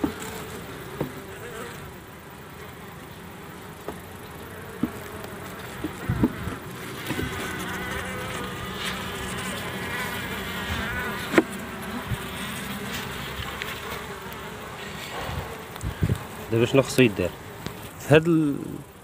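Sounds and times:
honeybees buzzing: 0.0s - 19.0s.

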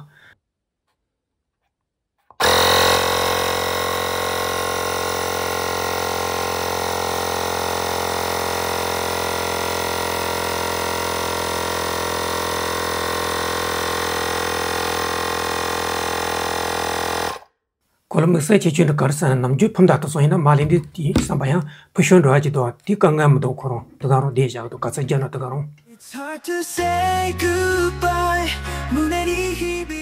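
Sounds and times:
air compressor humming: 2.3s - 17.4s, 20.6s - 21.8s.

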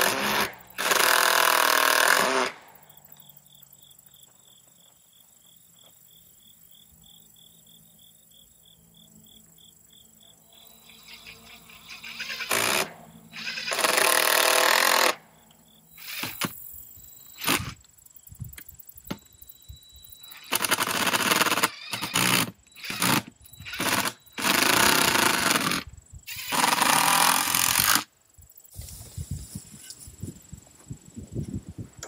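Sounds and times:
impact driver running screws: 12.0s - 15.2s, 20.4s - 28.1s.

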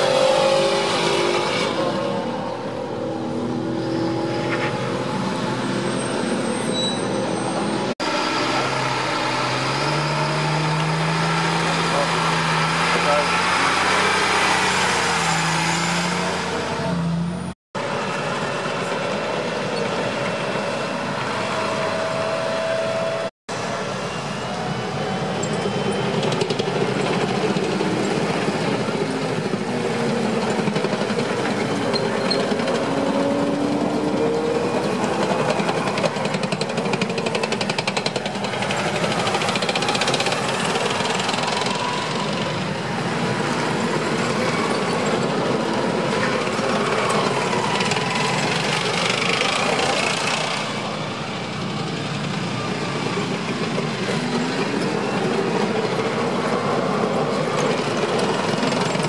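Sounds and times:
wavering squeals: 0.0s - 16.4s
truck passing: 0.0s - 59.0s
tank engines running: 1.7s - 59.0s.

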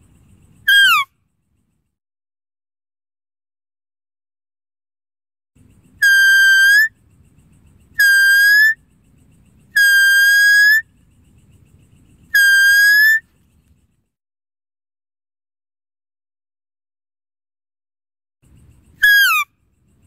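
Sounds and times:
high deer call: 0.7s - 1.1s, 6.0s - 7.0s, 8.0s - 8.8s, 9.7s - 10.9s, 12.3s - 13.3s, 19.0s - 19.5s.

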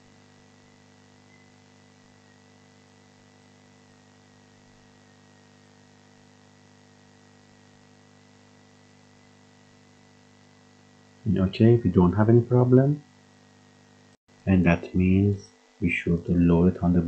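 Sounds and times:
electrical hum: 0.0s - 17.0s
faint background hiss: 11.3s - 13.0s, 14.4s - 17.0s.

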